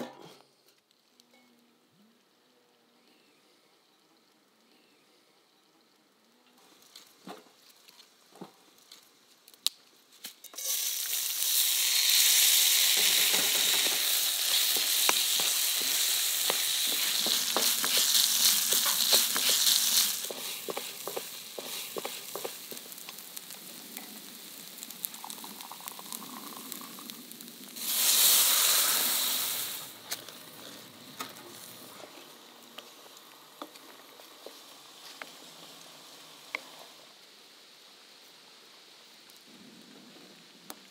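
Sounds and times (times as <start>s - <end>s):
rice sizzling in hot oil: 10.2s - 37.0s
wooden spatula scraping and tapping: 13.0s - 23.2s.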